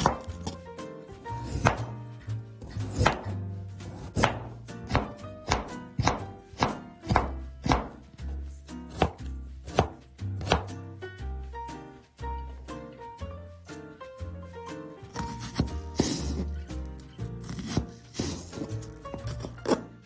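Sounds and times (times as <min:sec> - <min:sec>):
knife cutting carrot on board: 0:00.0 - 0:00.6, 0:01.4 - 0:02.0, 0:02.6 - 0:10.8, 0:15.1 - 0:20.0.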